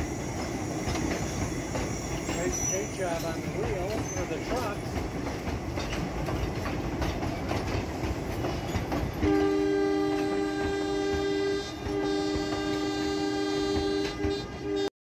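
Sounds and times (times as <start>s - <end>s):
train rolling over jointed track: 0.0s - 14.9s
train horn two-note chord: 9.2s - 14.9s.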